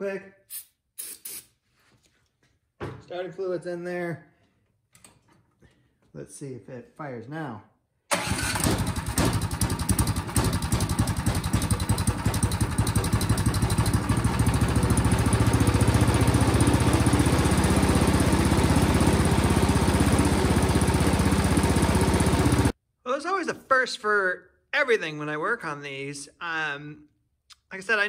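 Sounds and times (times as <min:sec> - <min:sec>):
snowblower engine running: 0:08.1 - 0:22.8.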